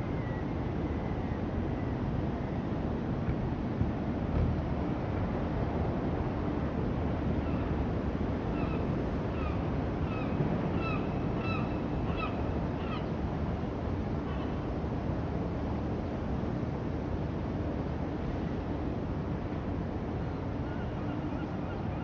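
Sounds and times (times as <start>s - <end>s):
distant traffic hum: 0.0s - 16.6s.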